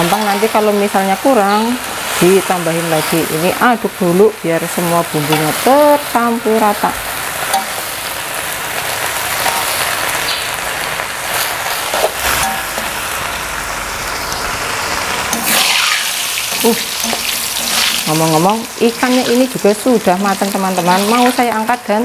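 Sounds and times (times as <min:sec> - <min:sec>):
vegetables sizzling in a wok: 0:00.0 - 0:22.0
metal spatula scraping a wok: 0:09.3 - 0:10.2, 0:11.2 - 0:13.1.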